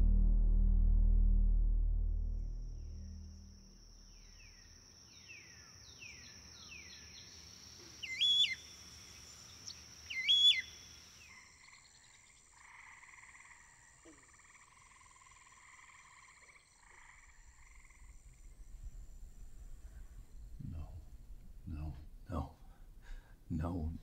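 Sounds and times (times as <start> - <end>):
high insect drone: 2.7 - 20.5
rising and falling bird calls: 2.8 - 13.4.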